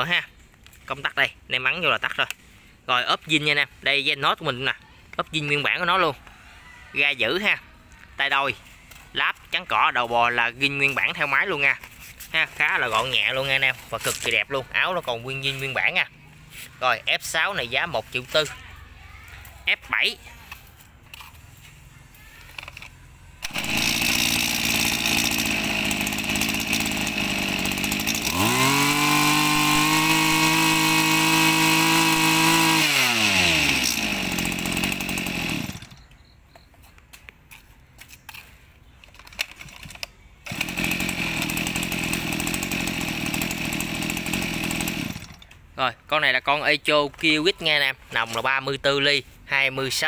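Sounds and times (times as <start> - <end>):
brush cutter engine revving: 1.6 - 2.5, 8.6 - 18.6, 19.7 - 36.0, 39.6 - 45.7.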